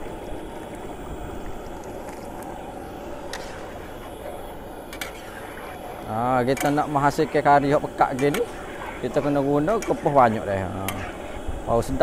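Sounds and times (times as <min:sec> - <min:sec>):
gas burner hissing: 0:00.0 - 0:12.0.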